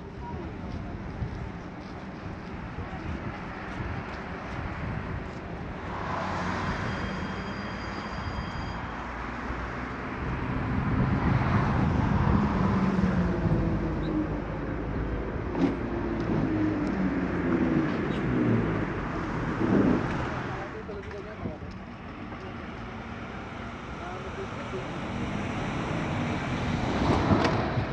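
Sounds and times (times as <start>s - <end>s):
tram wheels rumbling on rails: 10.2s - 27.9s.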